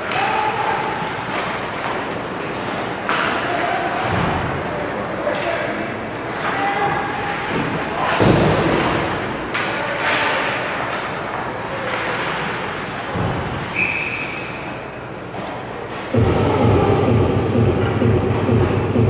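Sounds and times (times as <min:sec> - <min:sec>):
loud low rumble: 0:16.2 - 0:19.0.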